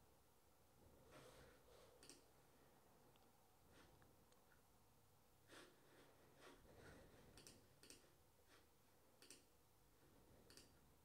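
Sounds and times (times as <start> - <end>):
computer mouse clicks: 2.0 - 2.3, 7.3 - 8.1, 9.2 - 9.5, 10.4 - 10.8.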